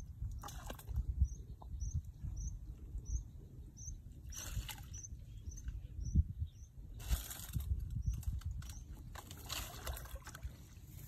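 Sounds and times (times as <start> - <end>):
small bird chirping: 1.2 - 6.8
hands splashing in muddy water: 9.2 - 11.0.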